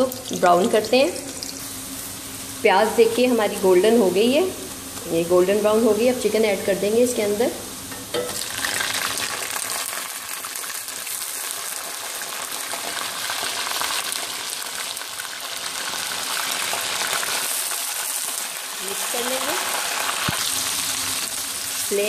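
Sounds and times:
chicken sizzling in hot oil: 0.0 - 3.0, 8.0 - 22.0.

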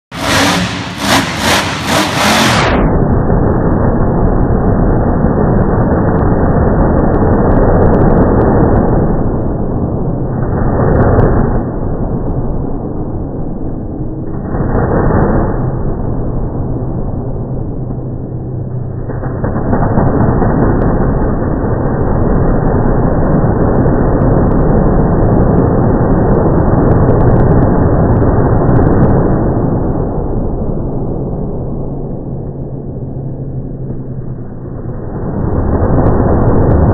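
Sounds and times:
monster truck engine revving: 0.0 - 12.2
deep muffled slowed rumble: 0.0 - 36.9
monster truck engine running hard: 0.0 - 36.9.

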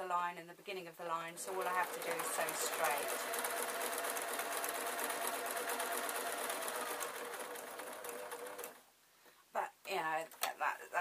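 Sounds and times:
sewing machine stitching: 1.2 - 8.8.

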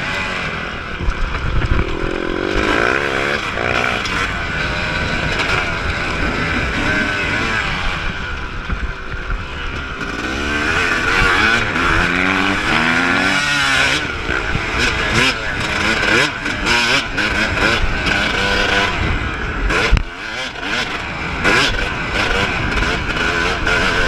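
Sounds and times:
motocross engine revving: 0.0 - 24.0.

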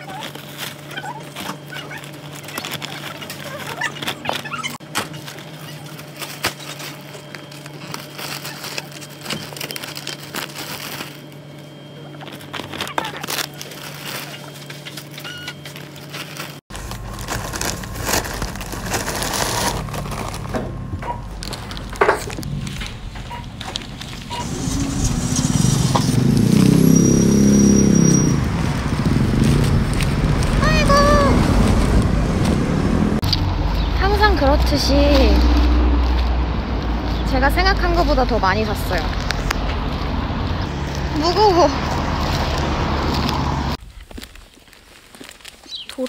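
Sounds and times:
plastic bags rustling and crinkling: 0.0 - 27.0, 34.2 - 46.0
steady low hum: 16.7 - 26.7.

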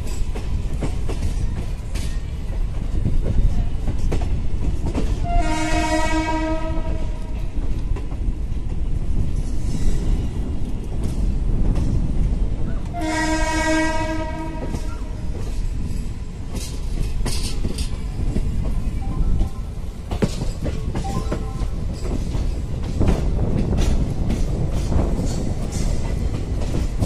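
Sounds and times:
moving train rumble and rattle: 0.0 - 27.0
train horn blasts: 5.2 - 7.4, 12.9 - 15.2.

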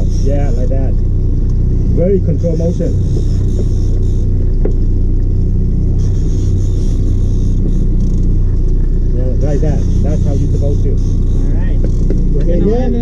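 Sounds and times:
outboard motor idling: 0.0 - 13.0.

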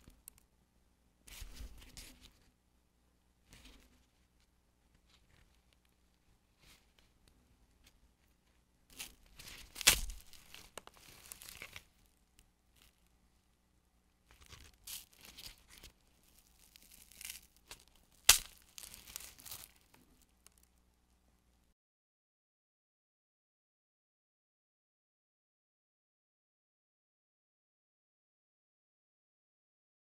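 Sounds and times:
crisp snack crackling and tearing: 8.9 - 12.1, 14.3 - 20.7
sharp crack: 9.0 - 11.8, 16.8 - 19.8.

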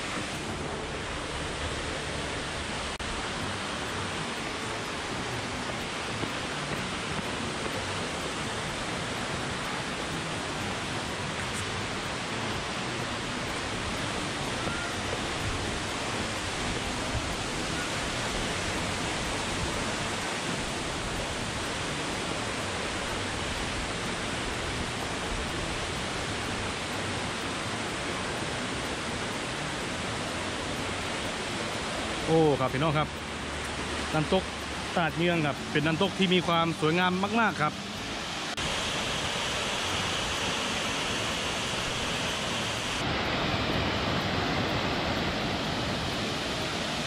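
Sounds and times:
waterfall rushing: 0.0 - 47.0.

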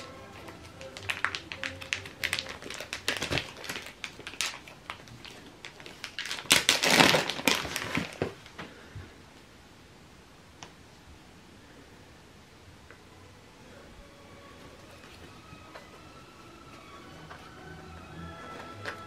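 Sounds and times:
plastic wrap crinkling: 0.0 - 8.6.

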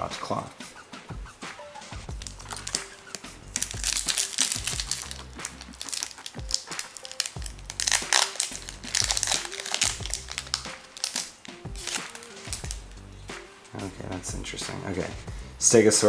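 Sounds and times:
background music: 0.0 - 16.0
foil wrapper crinkling: 2.1 - 12.8.

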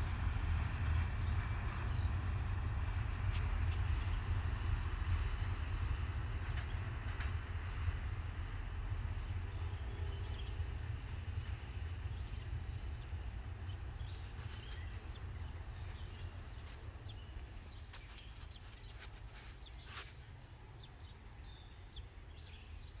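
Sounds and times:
freight train rumbling: 0.0 - 23.0
birds chirping: 3.8 - 20.1.

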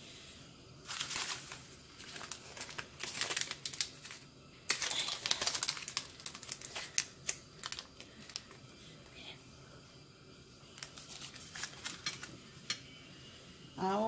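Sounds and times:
paper cupcake liner crackling: 0.8 - 8.6, 10.7 - 12.5.

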